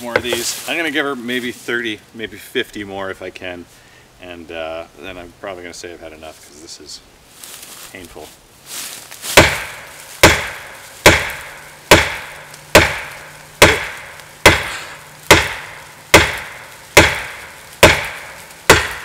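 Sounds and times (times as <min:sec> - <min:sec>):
axe handle striking tree trunk: 0:00.0 - 0:00.4, 0:09.4 - 0:19.0.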